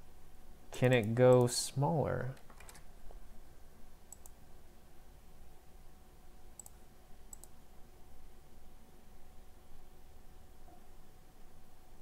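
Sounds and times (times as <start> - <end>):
faint room hum: 0.0 - 12.0
computer mouse clicks: 4.1 - 4.4, 6.6 - 7.6.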